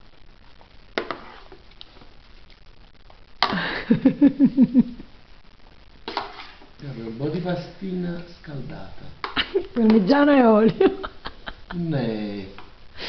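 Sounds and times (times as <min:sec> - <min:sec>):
person laughing: 0:03.5 - 0:05.1, 0:09.4 - 0:10.0, 0:10.6 - 0:12.1.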